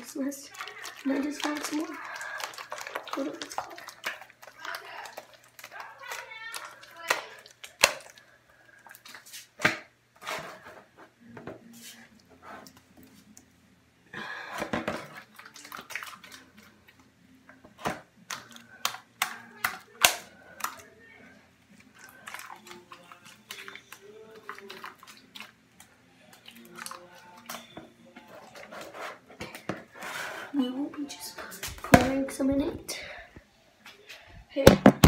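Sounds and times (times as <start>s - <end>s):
slime squelching by hand: 0.0s - 9.6s, 21.7s - 28.9s.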